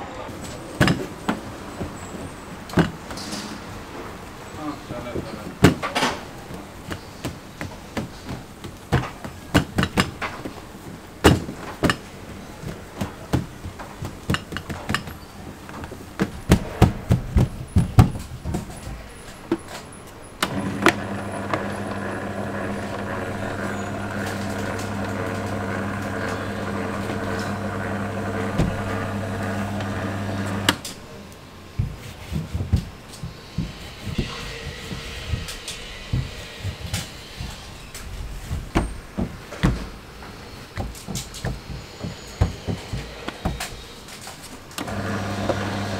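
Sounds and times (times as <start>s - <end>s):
dough-rolling machine motor humming: 20.4s - 30.8s, 44.8s - 45.9s.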